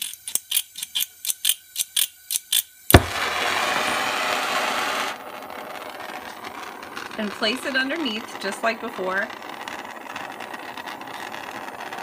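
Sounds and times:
gas torch igniting pop: 2.9s - 12.0s
torch flame hissing: 2.9s - 12.0s.

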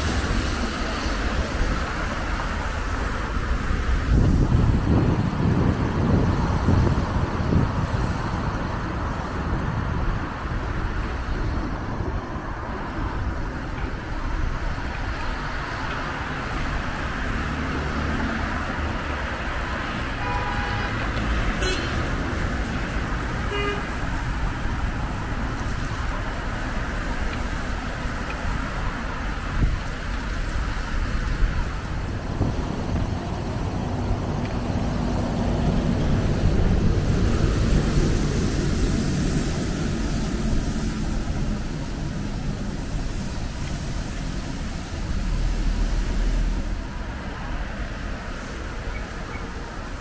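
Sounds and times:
city street traffic: 0.0s - 50.0s
vehicle horn toots: 20.2s - 21.0s, 21.6s - 22.1s, 23.5s - 24.0s.

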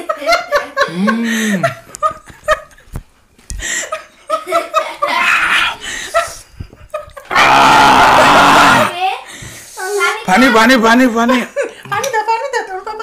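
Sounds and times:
woman laughing: 0.0s - 2.9s, 3.6s - 7.3s.

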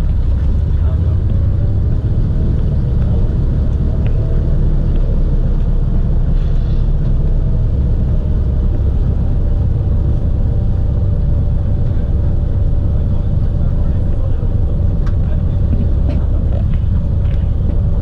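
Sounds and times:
propeller aircraft engine rumble: 0.0s - 18.0s.

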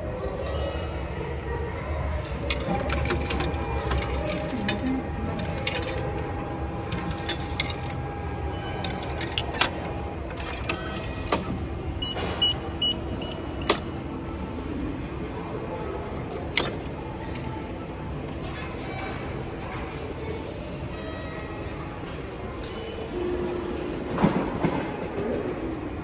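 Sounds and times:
vending machine clicks and clatter: 2.1s - 14.4s, 15.6s - 17.6s
station hum: 2.2s - 14.4s.

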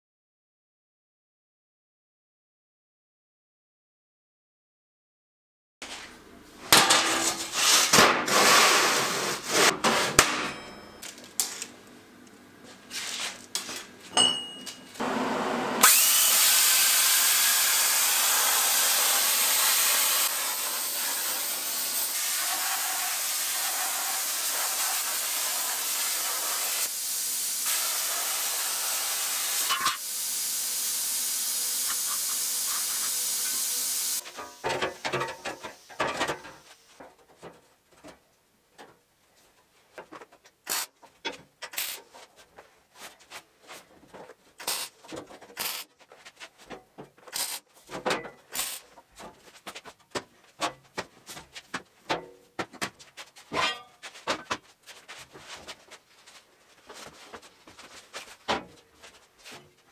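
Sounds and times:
power tool on steel sheet: 15.0s - 36.0s, 44.6s - 44.9s, 45.6s - 45.9s, 47.4s - 47.6s, 48.6s - 48.8s
plasma cutter hissing: 15.8s - 34.6s.

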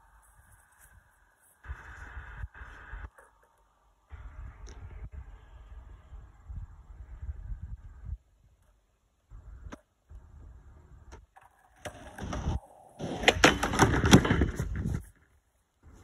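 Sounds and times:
skateboard wheels rolling: 0.0s - 4.6s, 8.6s - 16.0s
skateboard clattering on wood: 11.3s - 15.3s.

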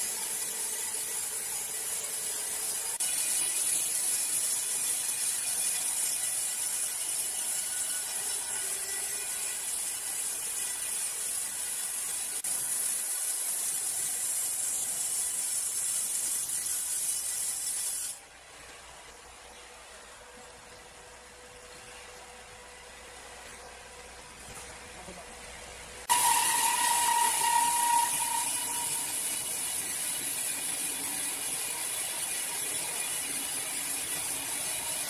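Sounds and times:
band saw cutting log: 26.1s - 35.0s.

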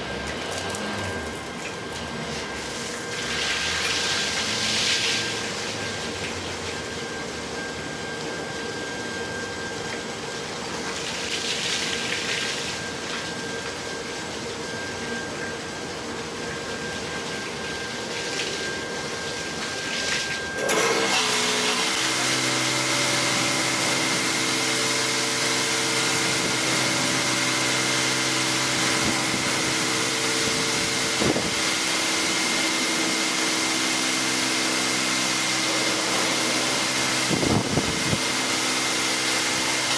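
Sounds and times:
pumps and motors humming: 0.0s - 39.9s
car wash spray hiss: 2.2s - 6.8s, 21.2s - 39.9s.

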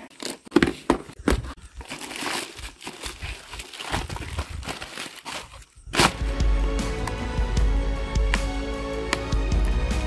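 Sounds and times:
cardboard and bubble wrap rustling: 0.0s - 6.4s
packing tape pulled off: 1.8s - 6.4s.

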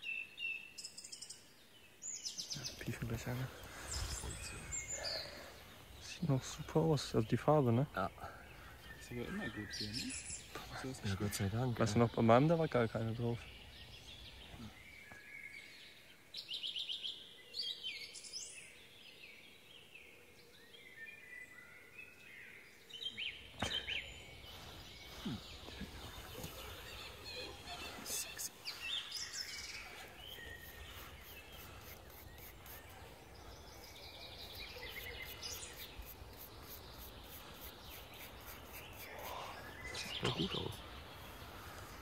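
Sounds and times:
small birds chirping: 0.0s - 42.0s
plastic brush scrubbing soil: 29.6s - 40.9s.

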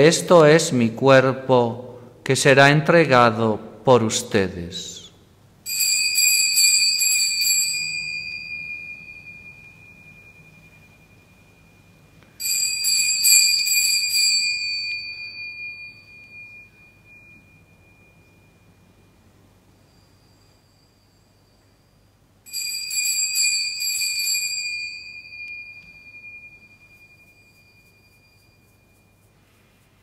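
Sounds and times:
altar bells jangling: 5.7s - 19.1s, 19.8s - 29.4s.

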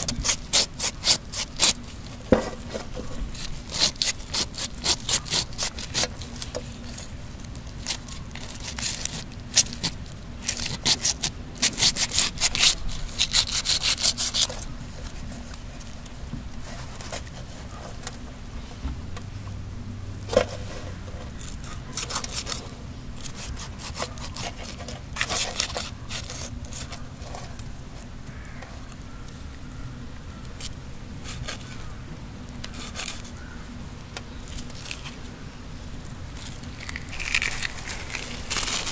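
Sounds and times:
knife scraping fish scales: 0.0s - 1.8s, 2.6s - 7.1s, 7.7s - 15.2s, 21.4s - 22.6s, 23.2s - 27.5s, 32.7s - 33.3s.

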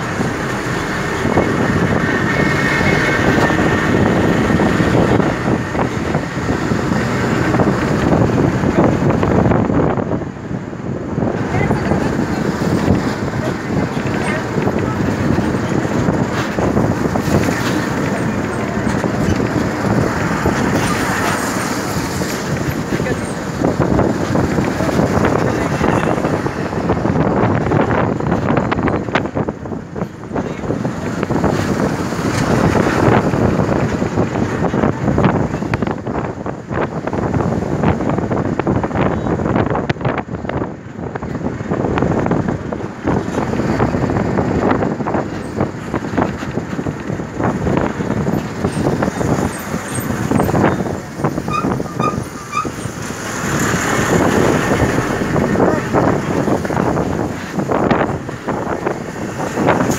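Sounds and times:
wind buffeting microphone: 0.0s - 59.9s
people's voices: 11.2s - 27.7s, 50.0s - 59.6s.

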